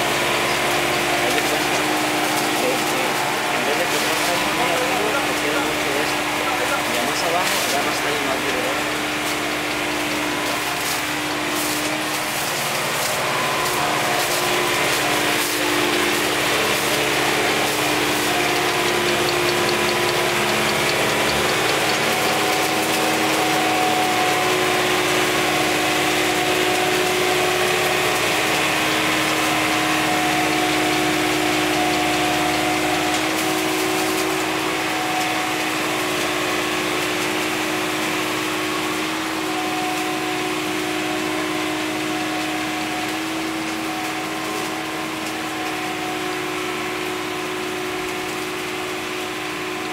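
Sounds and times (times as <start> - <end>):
tractor engine running: 0.0 - 49.9
sharp clicks and cracks of canes: 18.1 - 23.2.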